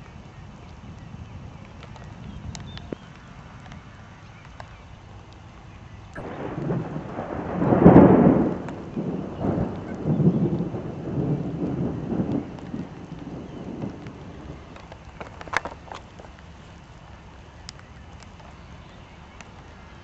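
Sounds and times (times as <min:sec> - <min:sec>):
thunder rumbling: 0:06.1 - 0:20.0.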